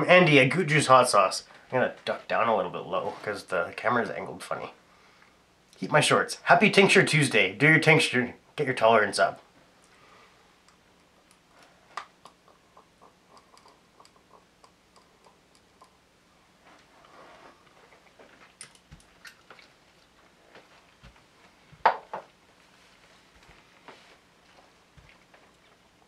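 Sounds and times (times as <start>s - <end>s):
mouth clicks and lip smacks: 12.0s - 16.0s.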